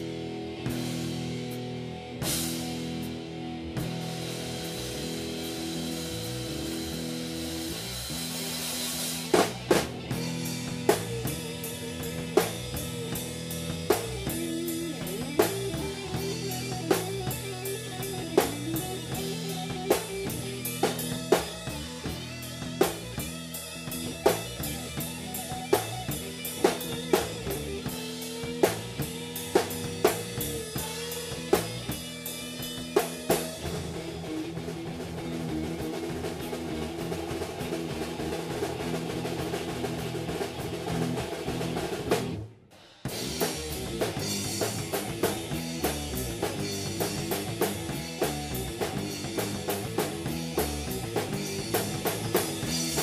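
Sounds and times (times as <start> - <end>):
bass guitar: 0.0 - 53.0
drum kit beat: 0.0 - 53.0
electric guitar chords: 0.0 - 53.0.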